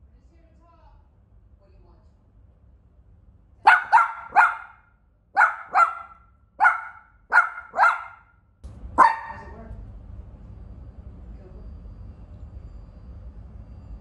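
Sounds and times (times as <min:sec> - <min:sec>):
small dog barking: 0:03.6 - 0:08.4, 0:09.0 - 0:09.6.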